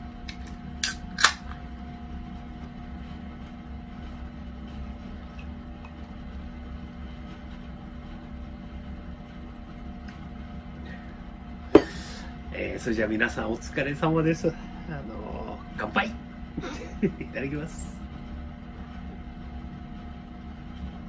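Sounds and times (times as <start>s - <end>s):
low background hum: 0.0s - 21.0s
can cracked open: 0.3s - 1.5s.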